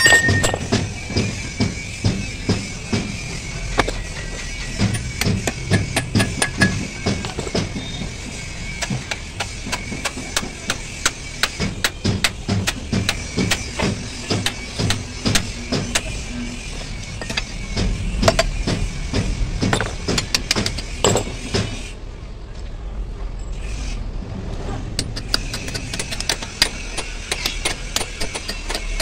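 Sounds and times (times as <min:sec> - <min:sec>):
hammer knocking on metal: 0:04.8 - 0:07.8.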